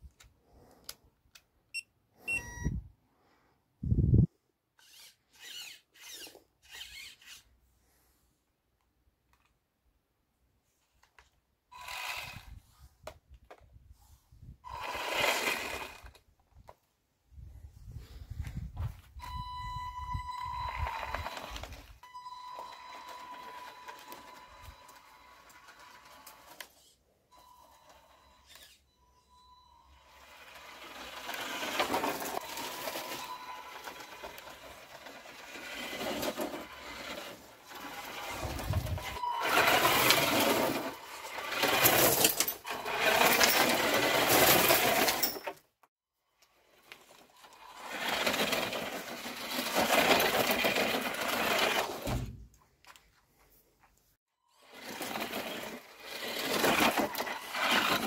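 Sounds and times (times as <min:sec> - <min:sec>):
rc car motor buzzing: 0:04.8 - 0:07.4, 0:14.7 - 0:16.1, 0:30.0 - 0:41.9, 0:54.6 - 0:58.0.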